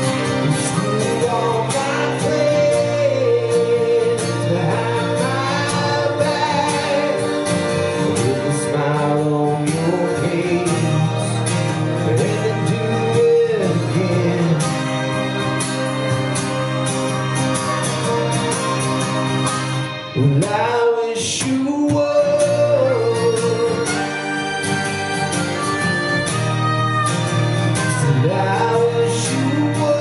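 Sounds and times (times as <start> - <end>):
strummed acoustic guitar: 0.0 - 30.0
harmonica playing bending notes: 10.7 - 20.4, 22.5 - 29.1.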